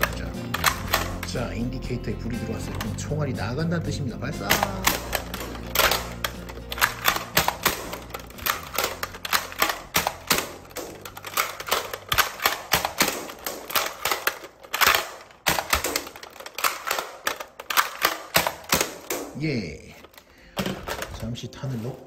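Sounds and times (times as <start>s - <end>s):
toy blasters clacking and popping: 0.0s - 1.5s, 2.4s - 3.2s, 4.4s - 21.3s.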